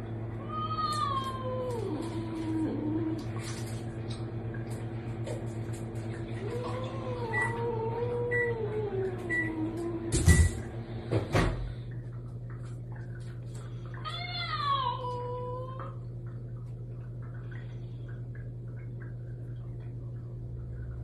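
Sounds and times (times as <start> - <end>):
cat meowing: 0.4 - 2.2.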